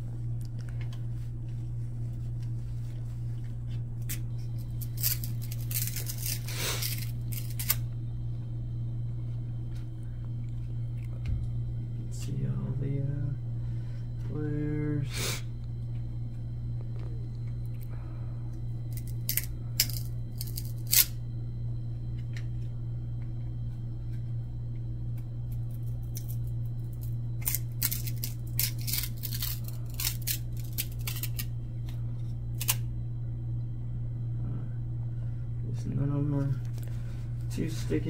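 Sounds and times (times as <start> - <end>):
steady low hum: 0.0 - 38.0
trading cards snapping and rustling: 4.0 - 7.8, 18.9 - 21.2, 25.5 - 31.5, 32.5 - 32.8.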